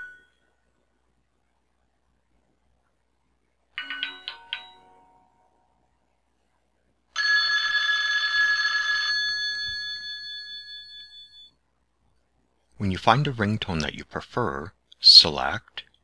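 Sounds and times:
bell-like ringing tone: 0:07.2 - 0:11.6.

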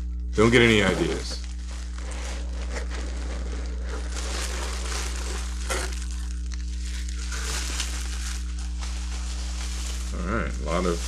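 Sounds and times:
bubble wrap crinkling: 0:00.0 - 0:11.0
low electrical hum: 0:00.0 - 0:11.0.

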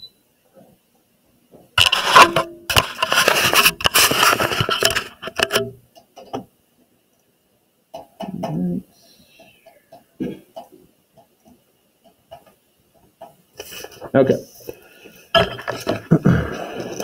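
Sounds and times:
document camera handling noise: 0:01.8 - 0:05.7.

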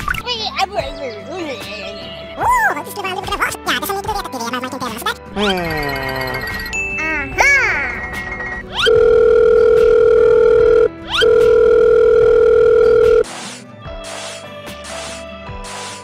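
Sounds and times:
light music: 0:00.1 - 0:16.0
telephone calling tone beeps: 0:08.8 - 0:13.2.

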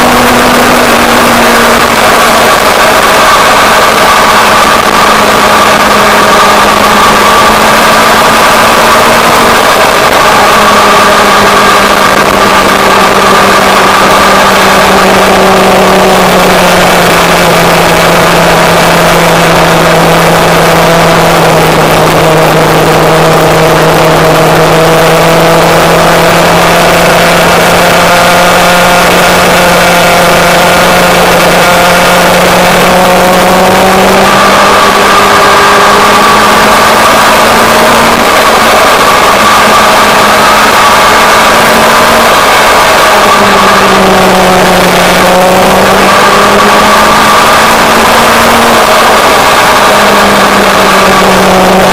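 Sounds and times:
motorcycle engine cruising: 0:00.0 - 0:51.9.

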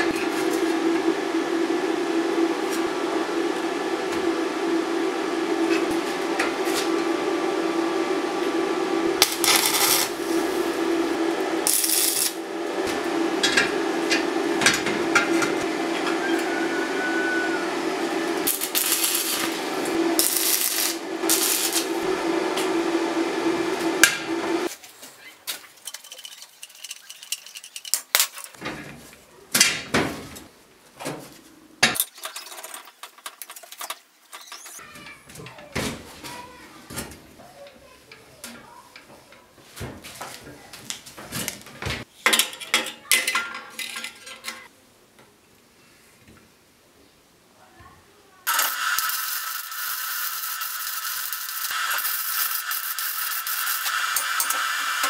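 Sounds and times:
power tool motor running: 0:08.4 - 0:14.6, 0:15.6 - 0:24.7, 0:48.5 - 0:55.0.

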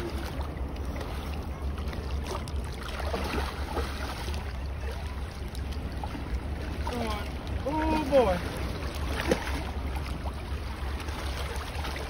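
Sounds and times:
fish thrashing in water: 0:02.0 - 0:05.0.

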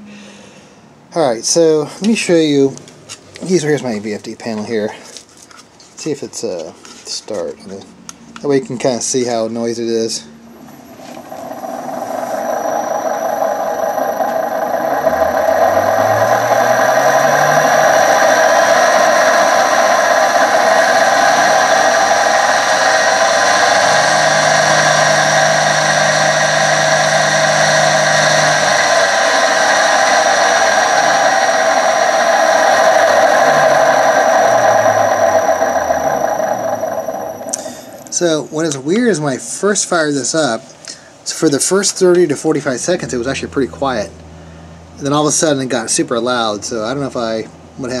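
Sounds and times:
groaning bearings: 0:09.8 - 0:39.1, 0:41.6 - 0:48.0
lathe motor humming: 0:10.5 - 0:39.2, 0:41.4 - 0:48.0.

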